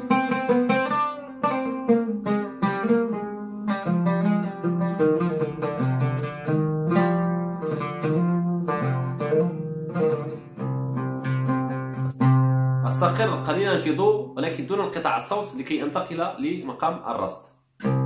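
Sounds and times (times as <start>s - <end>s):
solo oud plucked: 0.0s - 16.8s, 17.8s - 18.0s.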